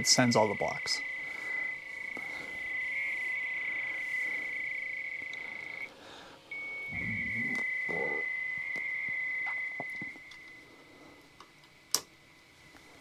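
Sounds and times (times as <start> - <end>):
modem data tone: 0.0 - 11.2.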